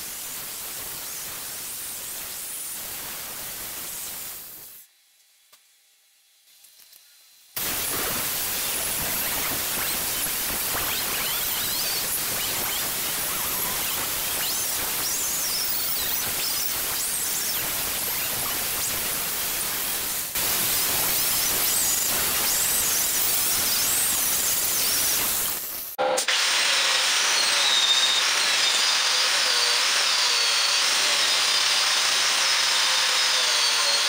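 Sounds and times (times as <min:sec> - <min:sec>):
angle grinder grinding steel: 0:07.6 - 0:18.6, 0:20.7 - 0:34.0.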